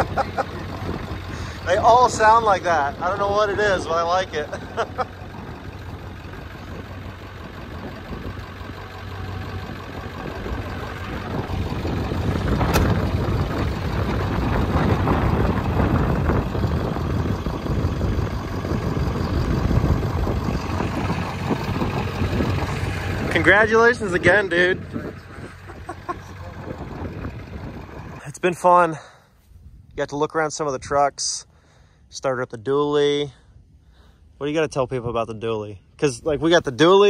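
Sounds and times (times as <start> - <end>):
diesel engine idling: 0.0 - 29.5.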